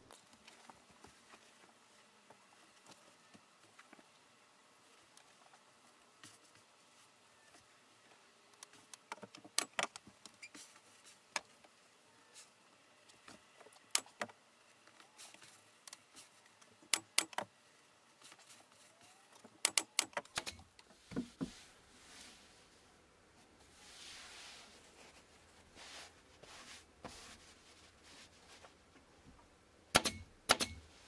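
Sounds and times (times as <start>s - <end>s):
sharp tool clicks and knocks: 19.6s - 20.6s, 30.0s - 30.8s.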